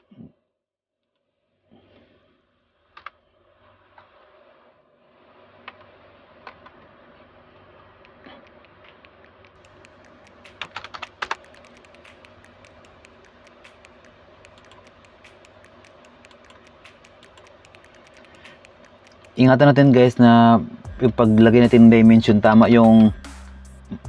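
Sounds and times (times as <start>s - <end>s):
computer keyboard typing: 8.1s - 19.6s.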